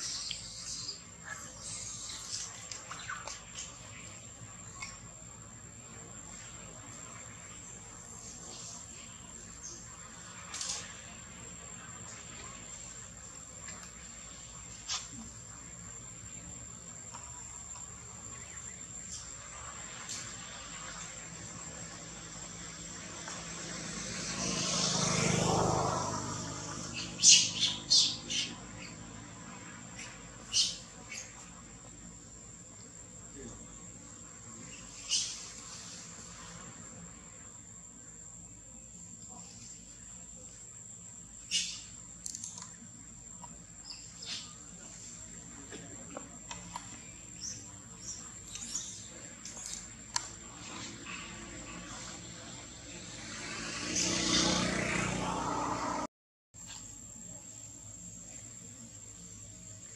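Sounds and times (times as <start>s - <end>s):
bird chirps: 0.0s - 4.1s, 26.8s - 29.1s, 30.0s - 31.4s, 34.6s - 35.5s, 41.4s - 42.7s
high insect whine: 0.0s - 59.9s
vehicle engine hum passing: 19.5s - 31.6s, 49.0s - 56.1s
high-pitched insect drone: 21.8s - 29.4s, 52.2s - 56.1s.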